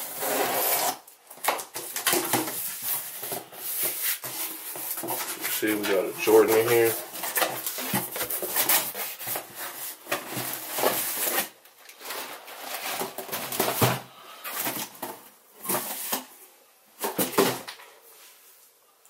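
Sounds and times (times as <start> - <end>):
cardboard and paper rustling: 0.0 - 16.4
box rubs and knocks: 2.0 - 16.3.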